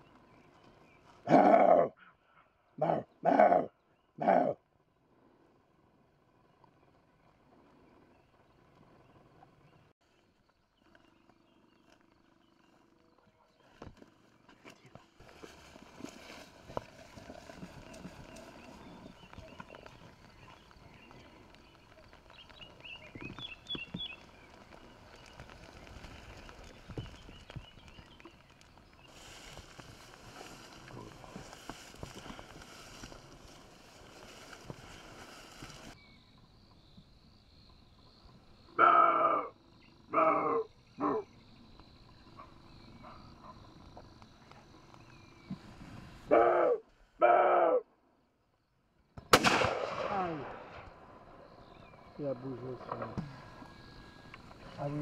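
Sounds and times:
deer barking: 1.2s - 4.6s, 38.8s - 39.5s, 40.1s - 41.3s, 46.3s - 47.9s
footsteps on grass: 13.5s - 36.0s
bird chirping: 17.2s - 29.2s.

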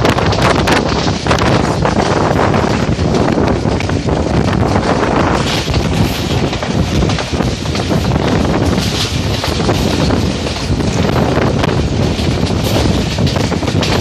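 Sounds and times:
train running noise: 0.0s - 14.0s
wind buffeting microphone: 0.0s - 14.0s.

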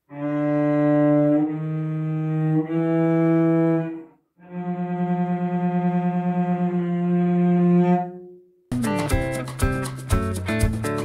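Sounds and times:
cello bowed sustained notes: 0.1s - 8.6s.

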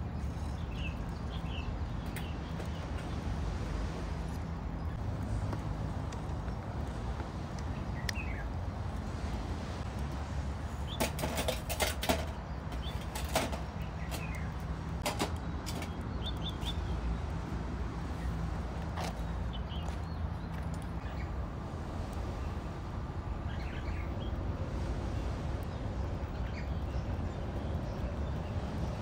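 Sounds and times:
metal trays clanking on stove: 10.9s - 14.4s, 15.0s - 16.0s.

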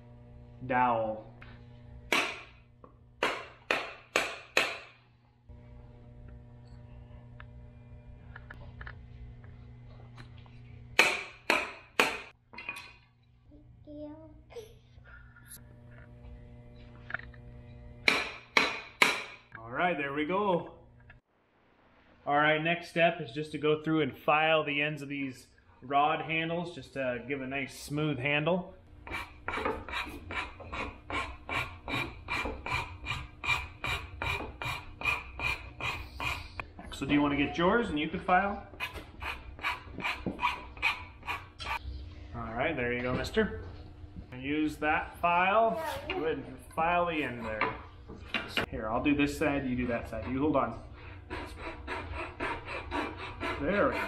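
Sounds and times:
low hum: 5.1s - 11.0s, 14.8s - 18.2s, 40.8s - 45.4s
metal file rasping on wood: 29.0s - 36.6s, 38.7s - 41.8s, 49.7s - 54.0s.

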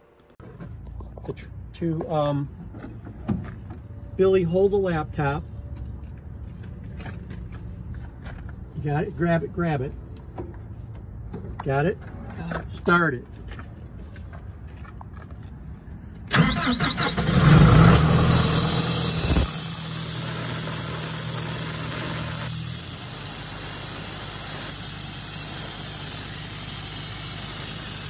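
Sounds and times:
diesel engine cranking and running: 14.7s - 28.0s.

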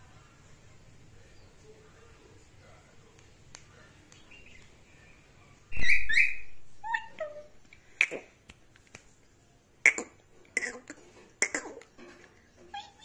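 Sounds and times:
falling whistled notes: 5.7s - 6.5s
parakeet squawking: 5.7s - 8.2s.

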